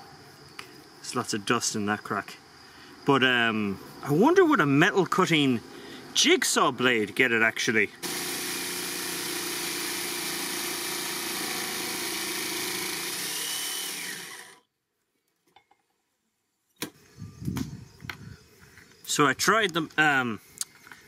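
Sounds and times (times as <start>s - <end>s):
jigsaw cutting steel: 8.0s - 14.6s.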